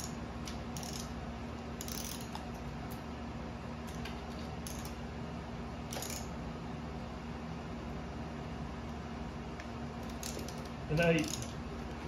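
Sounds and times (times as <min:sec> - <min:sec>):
ratcheting torque wrench clicking: 0:00.0 - 0:01.1, 0:01.8 - 0:02.4, 0:04.6 - 0:05.0, 0:05.9 - 0:06.3, 0:10.0 - 0:11.6
steady low hum: 0:00.0 - 0:12.0.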